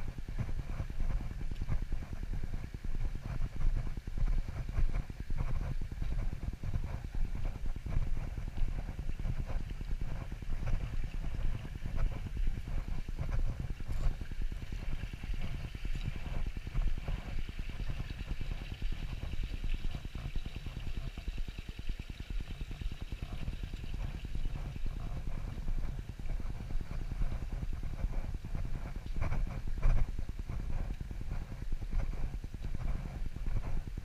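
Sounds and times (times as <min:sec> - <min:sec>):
stream trickling: 0:13.6 - 0:27.5.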